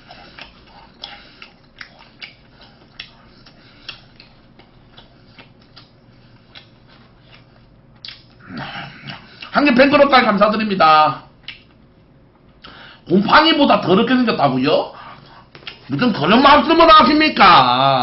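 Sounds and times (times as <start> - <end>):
mouth smacks while eating: 0.0 - 9.6, 11.4 - 12.8, 15.0 - 15.9.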